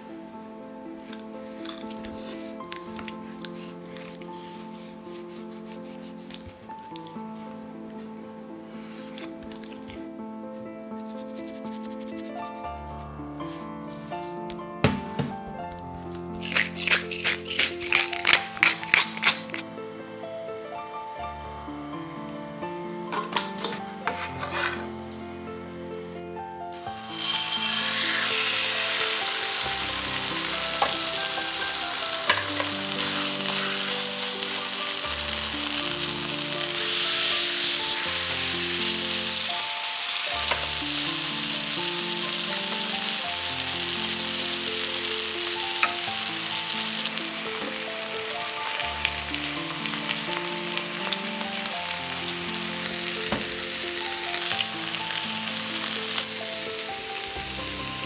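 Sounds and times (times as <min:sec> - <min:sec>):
soft background music: 0:00.0 - 0:58.0
chicken sizzling in oil: 0:16.4 - 0:19.6, 0:26.8 - 0:58.0
tongs clicking: 0:16.4 - 0:19.6.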